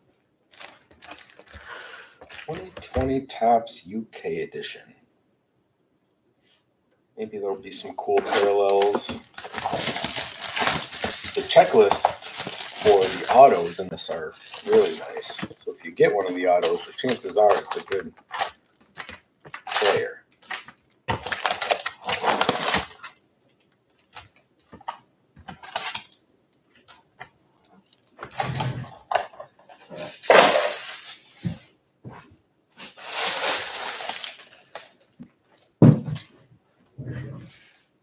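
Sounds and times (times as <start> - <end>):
foil wrappers crinkling: 0.5 - 2.8, 8.0 - 27.0, 29.0 - 31.6, 32.8 - 35.2.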